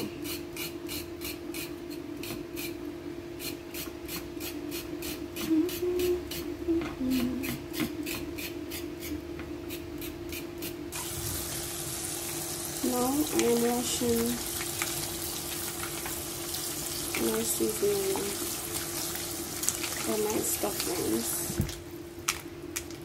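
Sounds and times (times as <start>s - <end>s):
steady low hum: 0.0s - 23.0s
knife scraping carrot skin: 0.2s - 2.8s
tap running: 11.0s - 22.9s.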